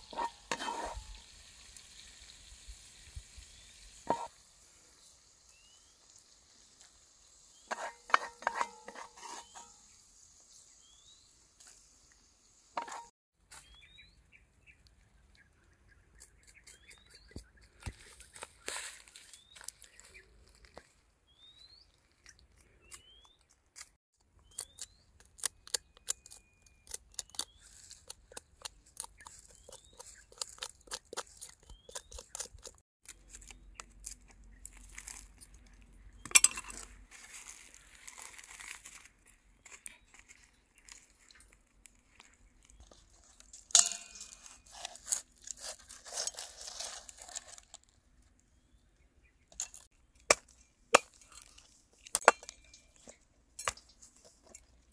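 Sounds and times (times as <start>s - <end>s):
crisp food crunching: 21.9s - 48.4s, 49.5s - 54.9s
sharp clicks and clinks: 36.2s - 36.9s.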